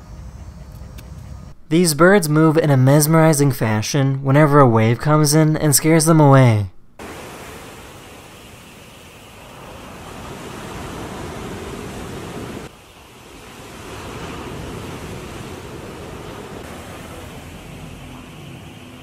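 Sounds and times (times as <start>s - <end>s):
ocean surf on sandy beach: 7.0s - 19.0s.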